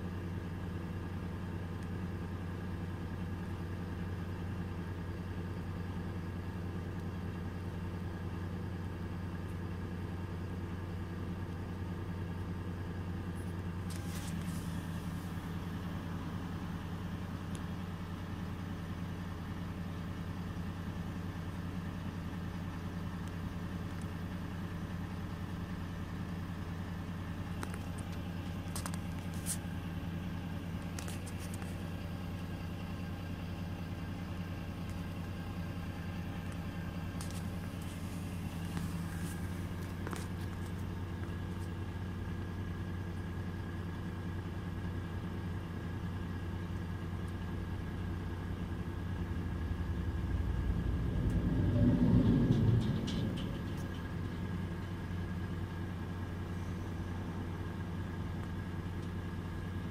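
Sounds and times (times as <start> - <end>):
diesel bus engine idling: 0.0 - 59.9.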